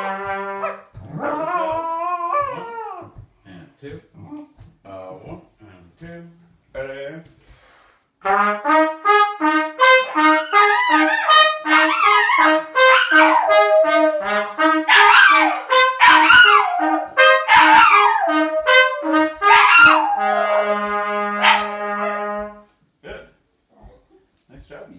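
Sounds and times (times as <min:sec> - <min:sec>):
trumpets playing a tune: 0:00.0 - 0:02.1, 0:08.2 - 0:22.8
dog howling: 0:01.1 - 0:03.2, 0:10.5 - 0:22.2.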